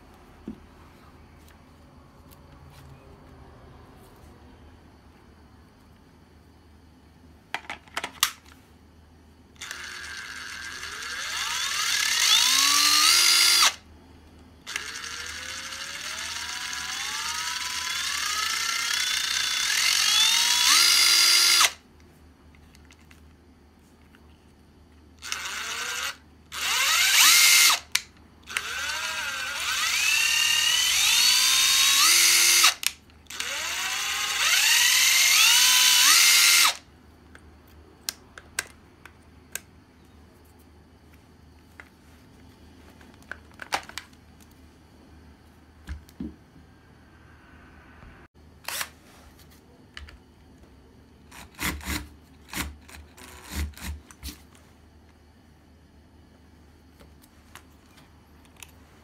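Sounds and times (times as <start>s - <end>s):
impact driver motor whine: 9.6s - 13.8s, 14.7s - 21.8s, 25.2s - 27.9s, 28.5s - 36.8s.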